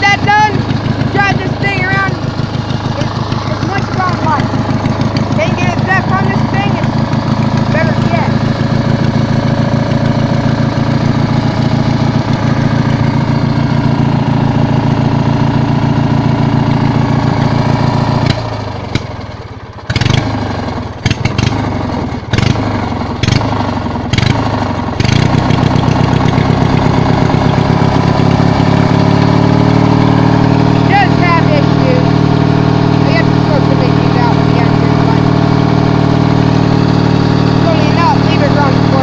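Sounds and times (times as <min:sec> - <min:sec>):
riding lawn mower engine: 0:00.0 - 0:39.0.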